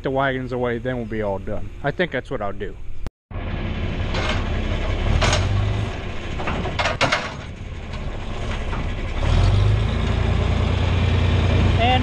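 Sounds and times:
tractor engine running: 3.3 - 12.0
metal clanks from wagon hitch: 4.1 - 9.0.

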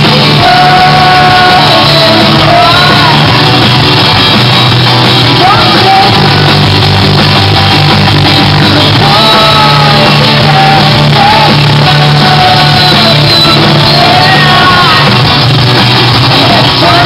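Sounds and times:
voices singing held notes: 0.0 - 3.6, 8.7 - 15.4
live rock band playing: 0.0 - 17.0.

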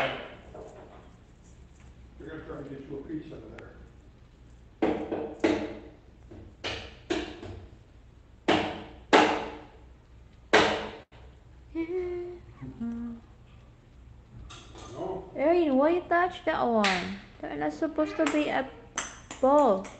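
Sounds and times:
coconut knocking on hard surface: 4.8 - 7.7, 8.5 - 9.7, 10.5 - 11.0.

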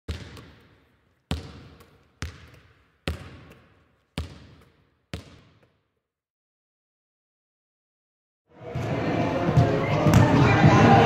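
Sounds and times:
basketball bouncing with echo: 0.1 - 5.9, 9.5 - 11.0.

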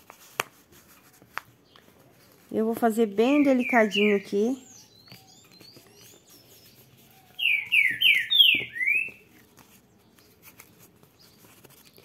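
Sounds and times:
bird whistling call: 3.4 - 9.2.

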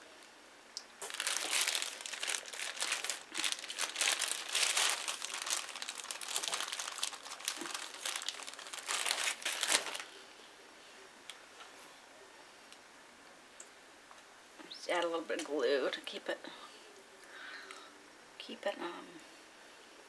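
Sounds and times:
plastic bag crinkling: 1.0 - 10.2.

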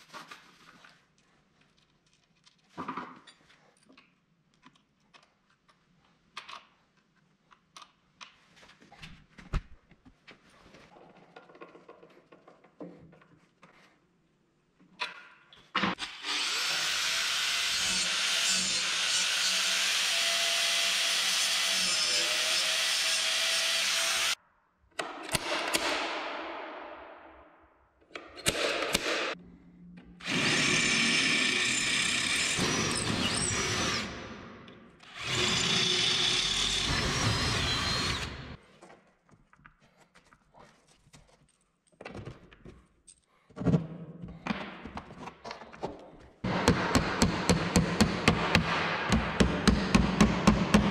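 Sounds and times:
power tool running: 30.2 - 34.3, 35.0 - 38.6.

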